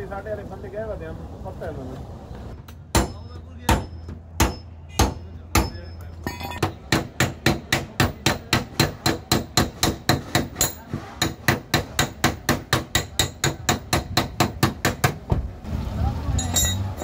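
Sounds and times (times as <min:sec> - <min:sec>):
hammering on vehicle metal: 0:02.6 - 0:15.5.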